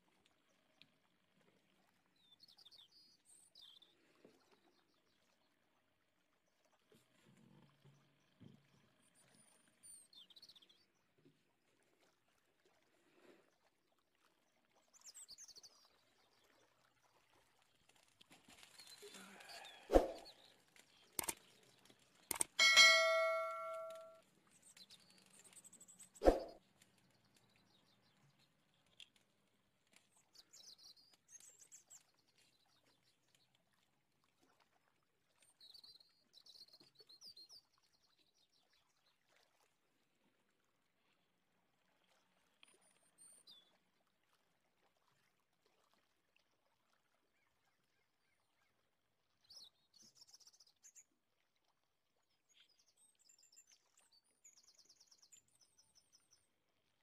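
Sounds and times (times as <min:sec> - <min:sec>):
sharp clicks: 0:21.2 - 0:21.4, 0:22.3 - 0:22.6
struck metal object ringing: 0:22.6 - 0:24.2.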